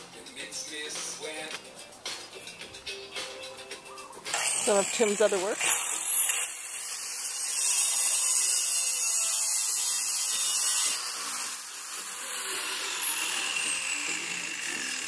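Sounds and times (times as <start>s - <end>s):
angle grinder cutting stone: 4.3s - 15.0s.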